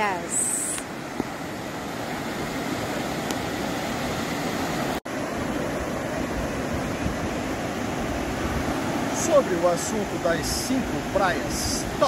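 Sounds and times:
ocean surf on beach: 0:00.0 - 0:12.0.

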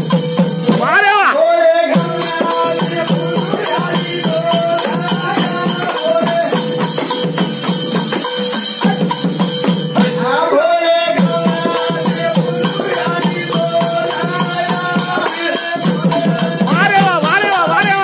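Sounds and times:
frame drum with jingles: 0:00.0 - 0:01.1, 0:01.9 - 0:10.4, 0:11.2 - 0:18.0.

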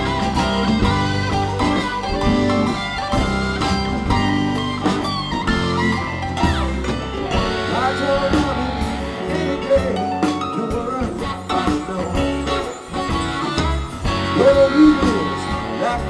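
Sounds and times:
electric guitars: 0:00.0 - 0:16.0
live band playing: 0:00.0 - 0:16.0.

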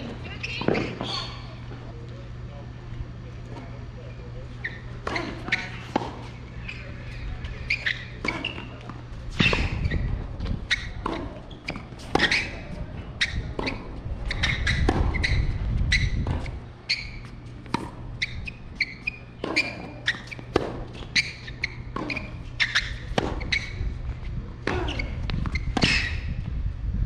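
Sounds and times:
tennis ball bouncing: 0:10.7 - 0:12.6, 0:13.2 - 0:23.7, 0:24.6 - 0:26.2
tennis ball striking racket: 0:10.7 - 0:12.6, 0:24.6 - 0:26.2.

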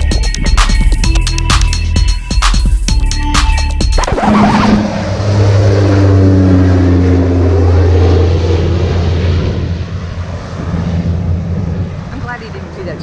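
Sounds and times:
motor engine droning: 0:03.5 - 0:13.0.

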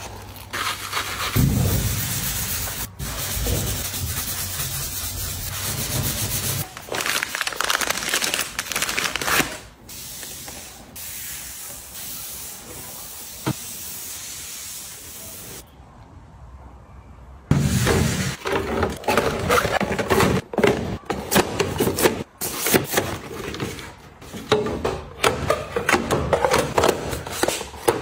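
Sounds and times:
sponge scrubbing surface: 0:00.6 - 0:06.6.

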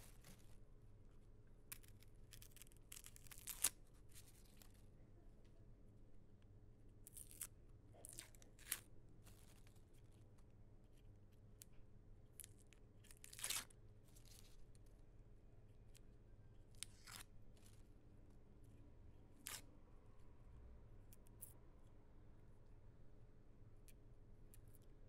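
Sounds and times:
onion skin tearing: 0:01.7 - 0:03.8, 0:07.0 - 0:08.9, 0:12.4 - 0:13.7, 0:16.8 - 0:17.3, 0:19.4 - 0:19.7.

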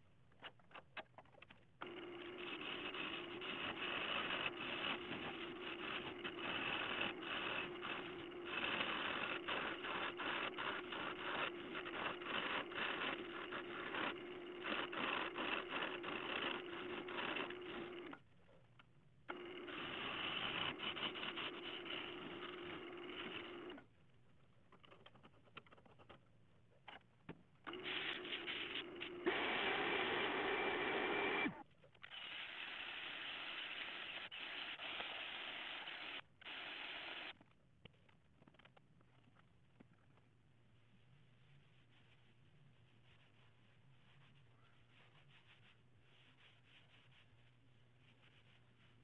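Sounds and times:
gouge cutting wood crackling: 0:01.8 - 0:18.2, 0:19.3 - 0:23.8
wood lathe humming: 0:01.8 - 0:18.2.

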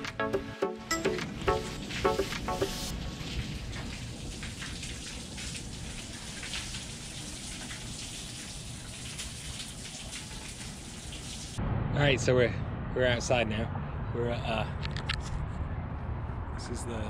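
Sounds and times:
light rain pattering on a cover: 0:01.9 - 0:11.4.

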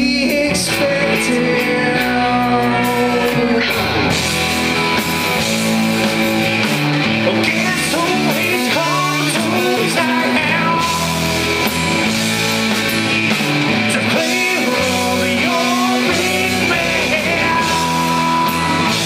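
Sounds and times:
bending lead guitar melody: 0:00.0 - 0:19.0
live rock band playing: 0:00.0 - 0:19.0.

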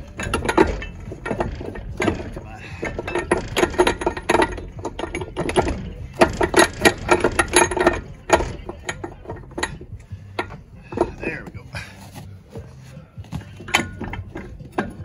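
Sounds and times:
metallic tool clicks and clanks: 0:00.0 - 0:11.2, 0:13.6 - 0:15.0.

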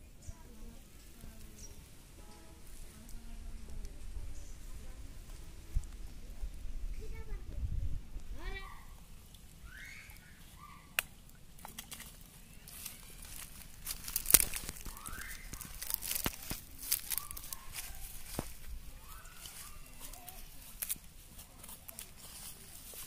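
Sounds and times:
fish flopping on leaves: 0:09.4 - 0:23.0.

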